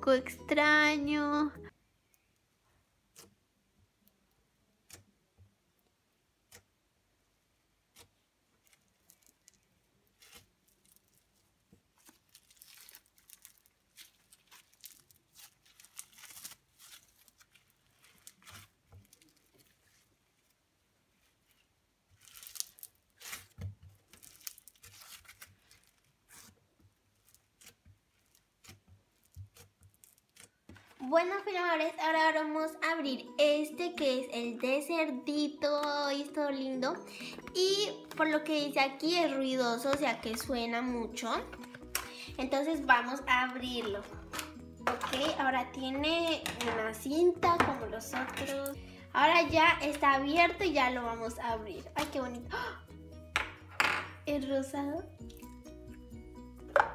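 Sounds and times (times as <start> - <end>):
foam bead slime crackling: 7.8 - 31.0.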